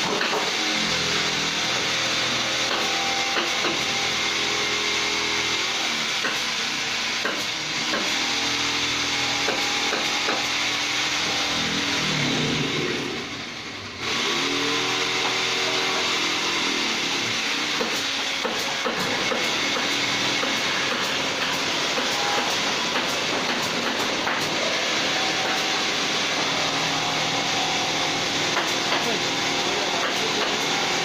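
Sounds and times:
engine-like drone: 11.2 - 31.0.

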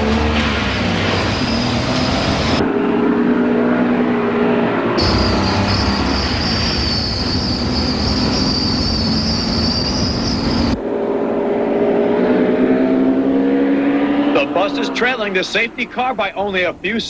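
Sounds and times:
bus engine and road rumble: 0.0 - 10.8
vehicle engine rising in pitch: 0.0 - 16.0
steady high whine: 5.0 - 12.0.

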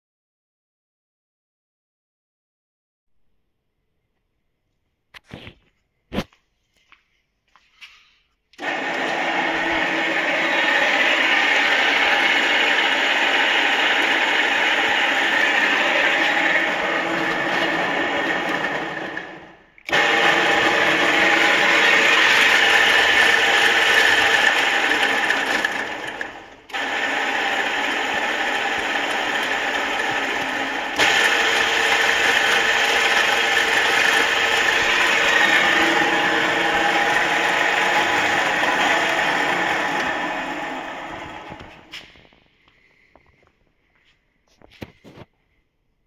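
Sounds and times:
electric mixer motor whirring: 8.6 - 42.2.

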